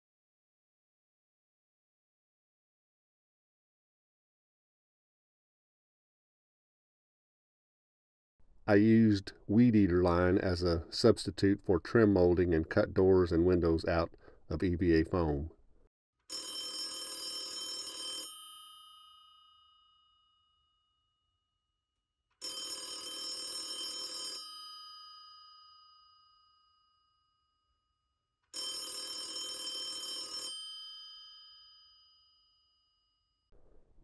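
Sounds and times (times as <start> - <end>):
telephone bell ringing: 16.3 - 20.4, 22.4 - 26.9, 28.5 - 33.0.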